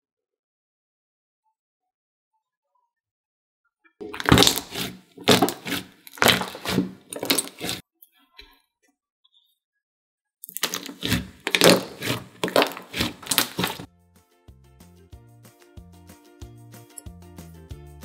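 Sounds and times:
slime squishing by hand: 4.0s - 7.8s, 10.4s - 13.9s.

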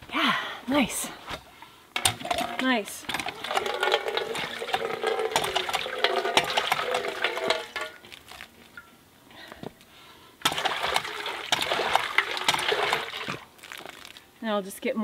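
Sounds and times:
pump handle clanking: 2.0s - 8.0s, 10.4s - 13.4s
water gushing into metal bowl: 2.0s - 8.0s, 10.4s - 14.1s.

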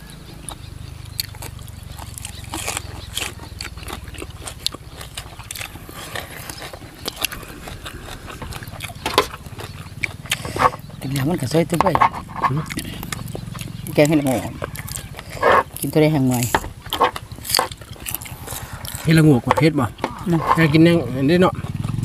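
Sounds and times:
low steady rumble: 0.0s - 22.0s
wet chewing and smacking: 0.0s - 22.0s
crisp crunches of vegetables: 1.1s - 11.2s.

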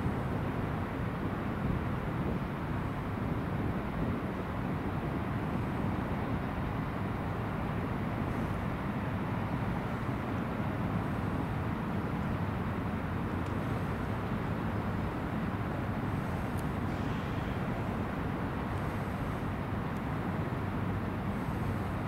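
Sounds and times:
traffic rumble: 0.0s - 22.0s.

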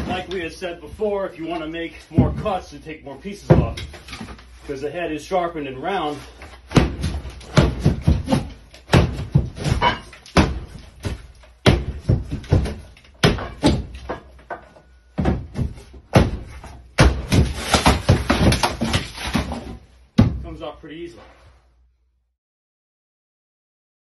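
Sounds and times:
plasterboard cracking and breaking: 0.0s - 0.4s, 6.6s - 14.6s, 15.2s - 19.9s.

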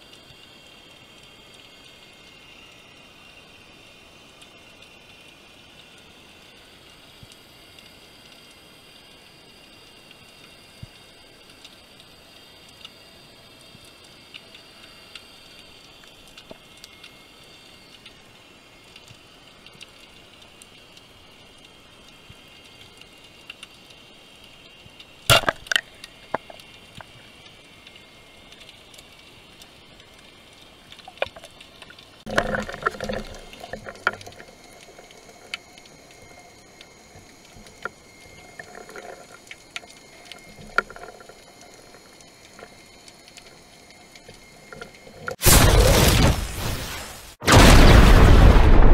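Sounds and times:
small clicks: 9.7s - 18.2s, 18.9s - 45.4s
speargun firing crack: 25.3s - 25.8s
rushing bubbling water: 31.0s - 42.8s.

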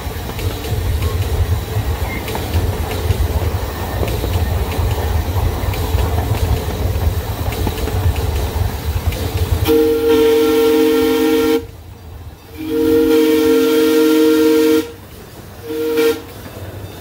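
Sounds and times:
wheels clicking over rail joints: 0.0s - 10.3s
miniature train wheels rumbling: 0.0s - 12.4s.

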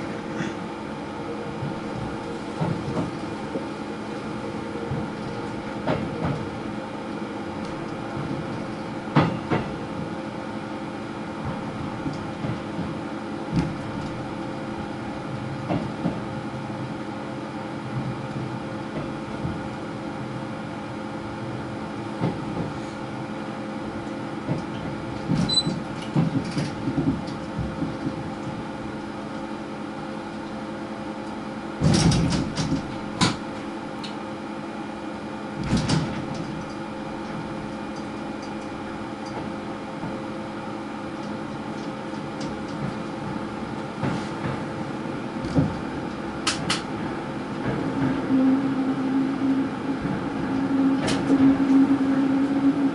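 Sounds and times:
train cab hum: 0.0s - 52.9s
clunks and rattles: 1.5s - 4.3s, 4.9s - 6.5s, 7.6s - 10.2s, 11.4s - 14.3s, 15.6s - 16.3s, 24.4s - 28.8s, 31.8s - 33.6s, 35.6s - 40.2s, 41.2s - 48.3s.

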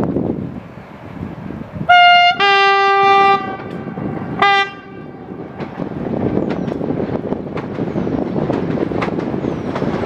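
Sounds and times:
train horn: 1.9s - 5.7s.

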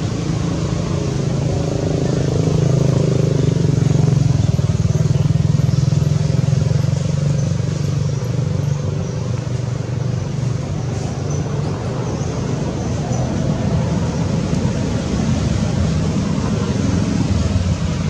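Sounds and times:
vehicle engine humming: 0.0s - 18.0s.

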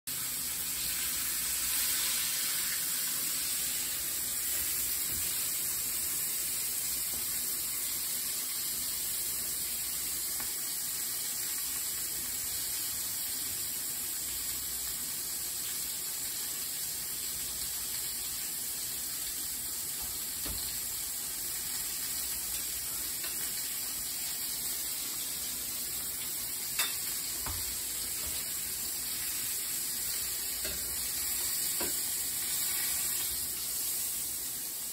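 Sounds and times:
onion sizzling in a frying pan: 0.1s - 34.9s.

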